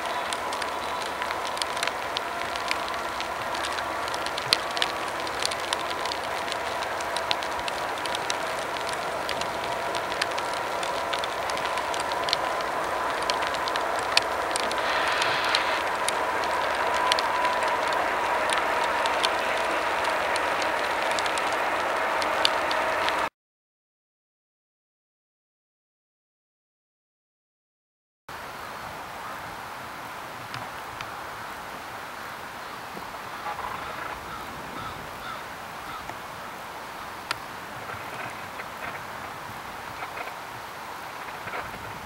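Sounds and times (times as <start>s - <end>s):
freight train rolling: 0.0s - 23.3s
high whine: 0.0s - 23.3s
wheels clicking over rail joints: 0.0s - 23.3s, 32.9s - 36.3s, 37.1s - 42.0s.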